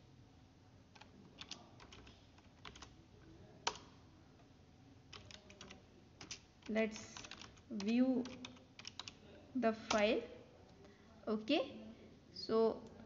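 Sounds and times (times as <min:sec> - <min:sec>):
computer keyboard keystrokes: 0:00.9 - 0:03.0, 0:03.6 - 0:04.0, 0:05.1 - 0:09.2, 0:09.9 - 0:10.1.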